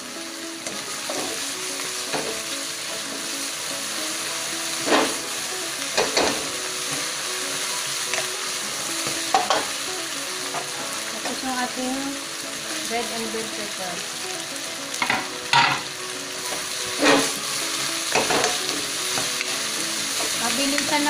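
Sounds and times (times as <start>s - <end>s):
food sizzling in a wok: 0.0s - 21.0s
spatula scraping a pan: 4.7s - 5.2s, 16.4s - 20.5s.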